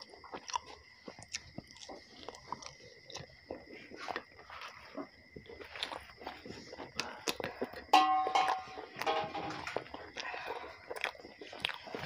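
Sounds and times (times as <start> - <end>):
man chewing wetly: 0.0 - 7.9, 8.8 - 12.0
faint high-pitched tone: 8.0 - 9.7.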